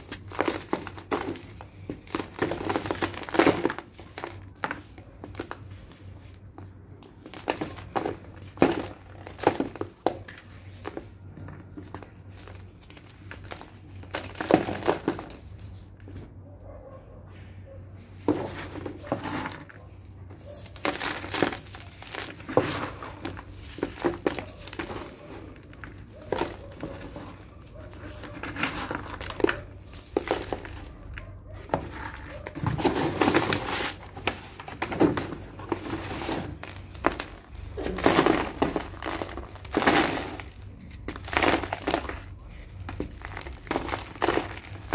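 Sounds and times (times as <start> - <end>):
cement lumps crunching by hand: 0.0 - 16.2, 18.2 - 44.9
plastic sheet crinkling: 18.5 - 44.9.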